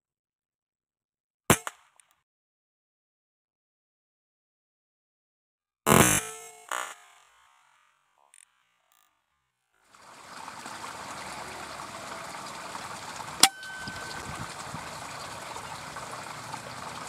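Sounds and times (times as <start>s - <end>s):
steady outdoor hiss: 10.0s - 17.0s.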